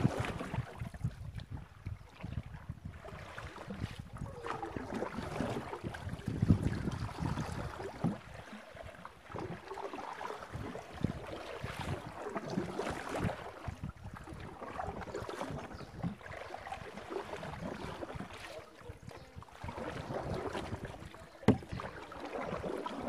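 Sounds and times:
wind gusting on microphone: 0.0s - 8.1s
water splashing against canoe: 0.0s - 23.0s.

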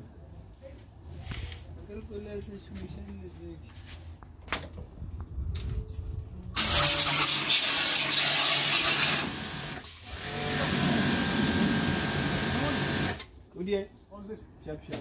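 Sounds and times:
pressure washer spraying: 6.6s - 13.2s.

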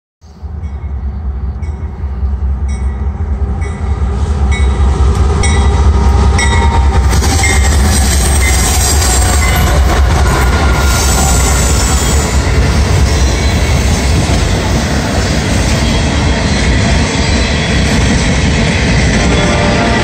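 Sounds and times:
locomotive engine rumble: 0.4s - 20.0s.

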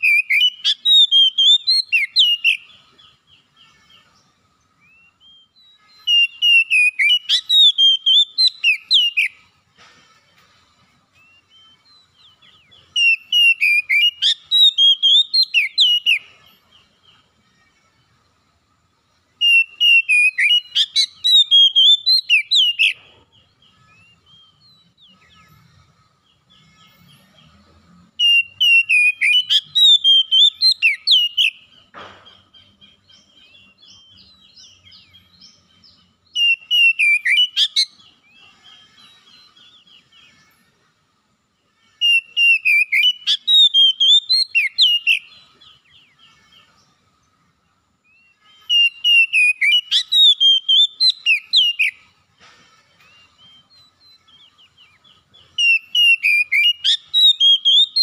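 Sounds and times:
bird singing whistled phrases: 0.0s - 2.7s, 4.8s - 9.4s, 11.2s - 16.3s, 19.4s - 23.0s, 28.2s - 31.7s, 36.3s - 38.2s, 42.0s - 46.8s, 48.1s - 52.1s, 53.0s - 58.0s.

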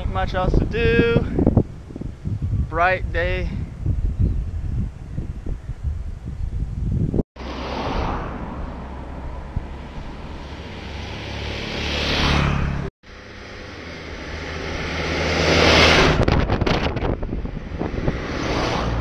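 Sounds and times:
light truck passing: 7.4s - 16.3s
motorcycle passing: 7.4s - 19.0s.

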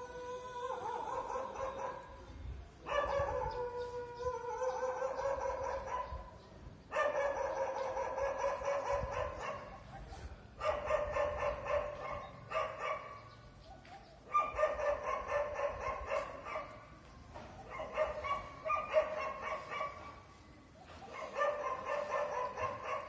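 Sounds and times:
dogs barking: 0.8s - 2.2s, 2.8s - 16.9s, 17.5s - 23.0s.

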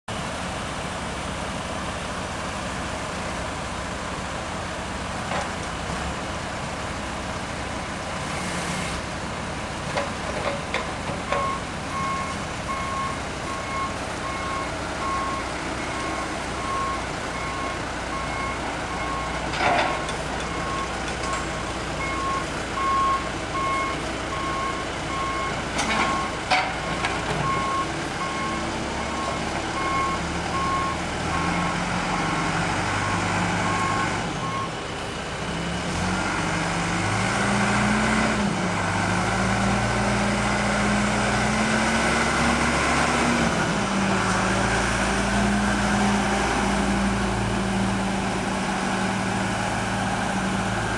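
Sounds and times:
diesel engine revving: 0.2s - 50.9s
reverse alarm beeping: 11.3s - 19.4s, 22.0s - 26.3s.

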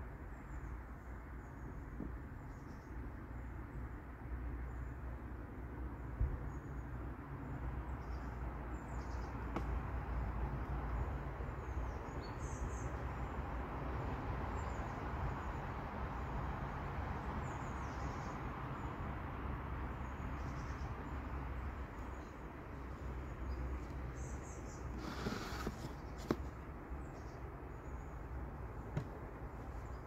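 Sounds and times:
small birds chirping: 6.2s - 13.4s, 19.9s - 30.0s.

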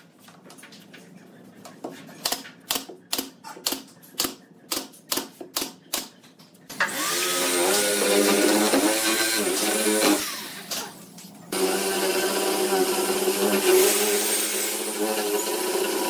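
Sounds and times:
cordless drill into wood: 6.9s - 10.6s.

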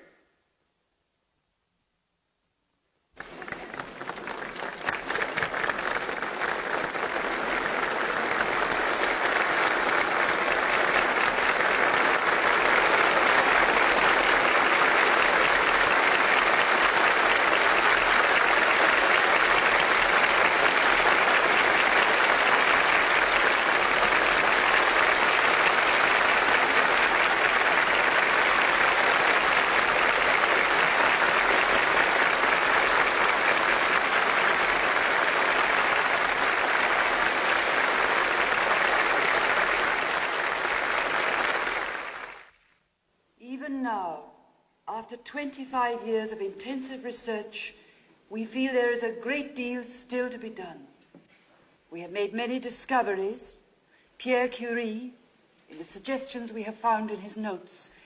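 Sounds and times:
large audience applauding: 3.2s - 42.8s.

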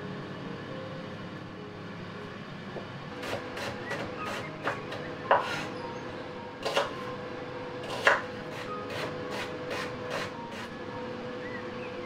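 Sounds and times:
knife chopping on wooden board: 3.2s - 5.7s, 6.6s - 7.0s, 7.8s - 10.7s.

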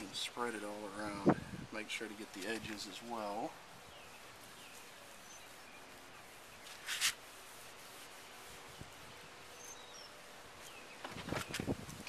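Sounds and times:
towel wiping plastic lens: 4.0s - 9.3s
faint bird chirps: 8.7s - 11.6s.

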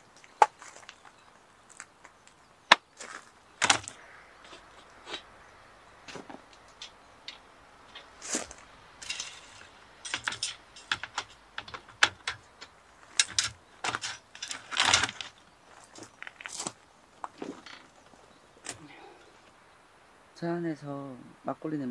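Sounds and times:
objects clicking and tapping: 0.2s - 5.3s, 6.1s - 15.4s.

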